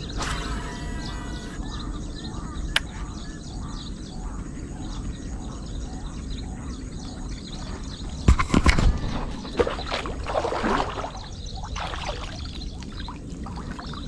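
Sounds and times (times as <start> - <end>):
steady low rumble: 0.0 - 10.4
birds chirping: 0.0 - 14.0.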